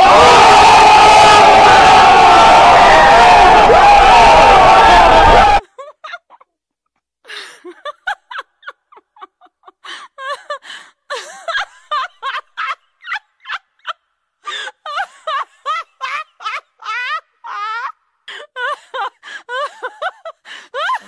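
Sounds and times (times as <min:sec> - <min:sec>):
high-pitched cackling laughter: 0:07.7 - 0:10.6, 0:14.7 - 0:18.0, 0:18.6 - 0:21.0.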